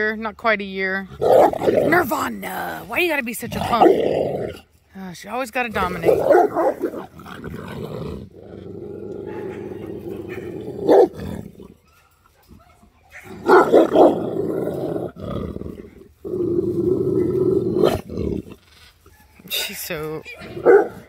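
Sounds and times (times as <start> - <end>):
dog growling and snarling: 1.1 - 4.7, 5.7 - 11.8, 13.2 - 19.0.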